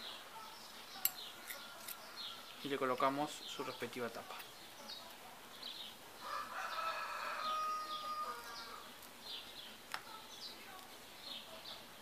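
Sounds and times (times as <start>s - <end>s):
small birds chirping: 0.0s - 12.0s
rooster crowing: 6.2s - 8.9s.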